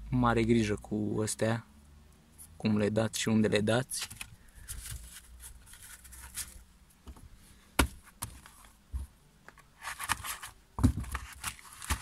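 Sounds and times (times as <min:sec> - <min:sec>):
cardboard boxes knocking: 0:10.8 - 0:11.2.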